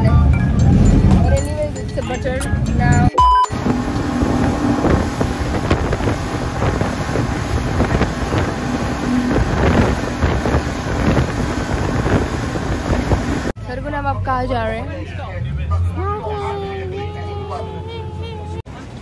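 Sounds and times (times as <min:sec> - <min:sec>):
wind buffeting microphone: 0:00.0 - 0:13.6
speedboat engine: 0:00.0 - 0:19.0.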